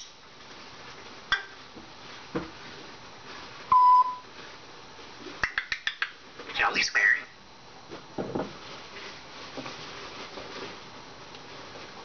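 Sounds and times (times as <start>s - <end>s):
short steady beep: 3.7s - 4.2s.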